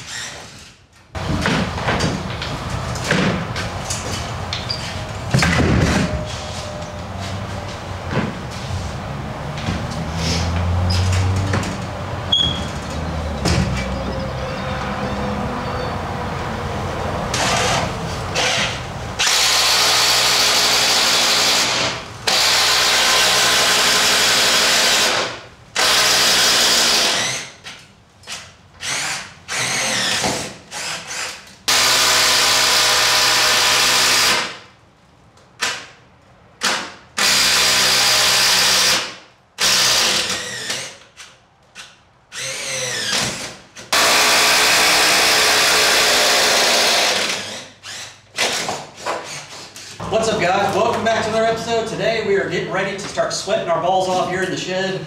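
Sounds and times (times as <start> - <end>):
power drill boring: 18.4 - 27.5, 28.8 - 34.5, 39.6 - 41.0, 42.3 - 48.6.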